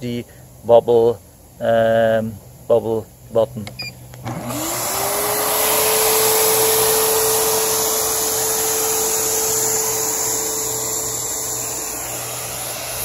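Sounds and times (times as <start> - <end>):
blower motor spinning up: 4.2 - 13.0
rush of air: 7.0 - 13.0.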